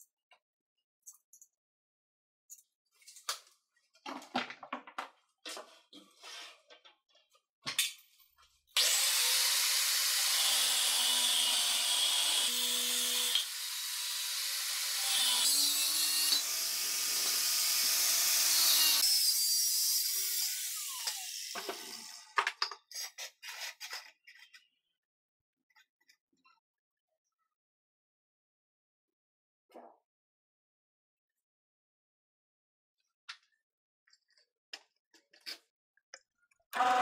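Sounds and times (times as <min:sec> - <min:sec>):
angle grinder cutting steel: 0:08.8 - 0:22.3.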